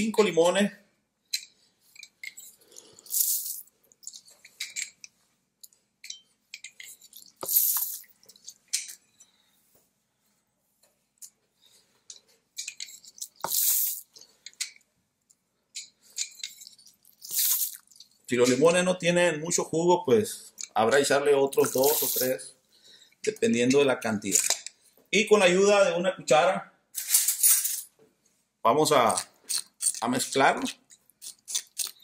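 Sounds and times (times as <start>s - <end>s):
juice dripping: 16.5s - 18.3s
lime juice spurting: 16.7s - 18.1s, 29.1s - 32.0s.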